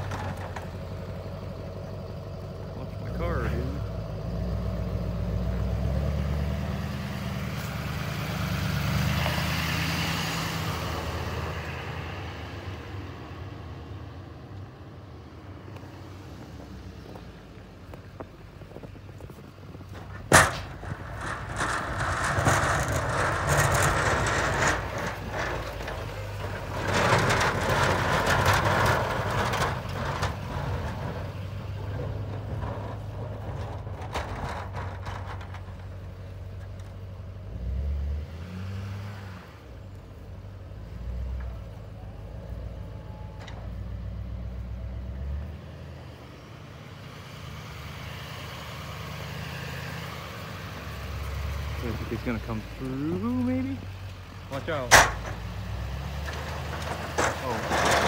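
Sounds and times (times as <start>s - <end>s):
truck engine rumbling: 0.0s - 58.0s
rushing crunching snow plowing: 16.0s - 36.8s, 48.1s - 58.0s.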